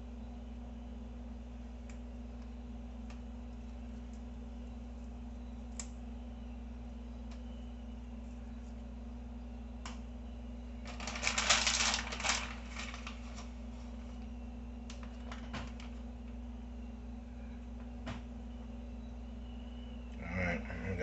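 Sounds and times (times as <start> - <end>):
steady low hum: 0.0 - 21.0
crackling and rustling of broccoli: 10.8 - 14.3.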